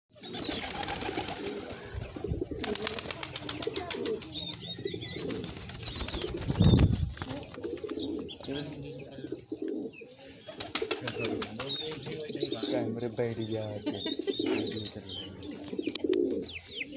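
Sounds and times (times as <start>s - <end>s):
pigeons cooing: 0.2s - 16.9s
high-pitched bird chirps: 3.7s - 16.9s.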